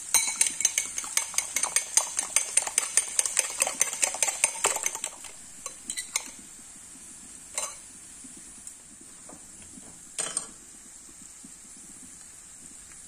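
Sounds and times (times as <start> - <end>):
meat sizzling in a pan: 0.0 - 13.0
fork tapping glass bowl: 0.1 - 6.4, 7.6 - 7.8.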